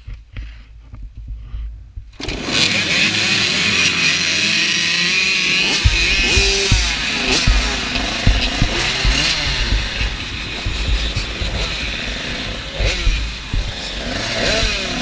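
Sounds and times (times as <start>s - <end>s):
motocross bikes revving: 2.2s - 15.0s
low rumble: 5.8s - 15.0s.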